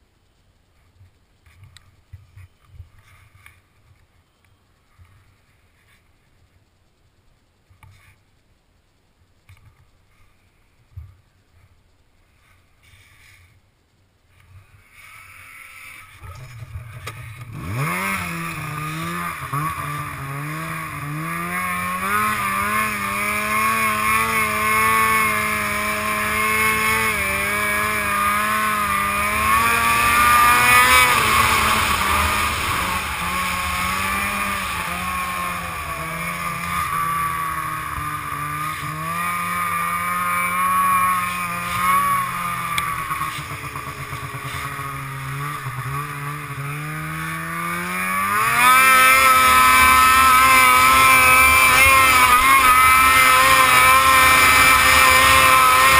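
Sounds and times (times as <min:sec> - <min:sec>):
snowmobile engine revving: 0:15.0 - 0:55.9.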